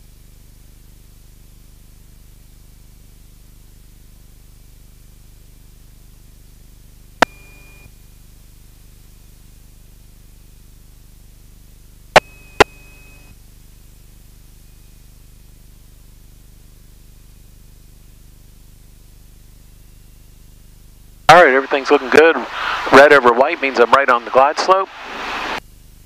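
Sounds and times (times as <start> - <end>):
radio hiss and hum: 7.2 - 8.0, 12.1 - 26.0.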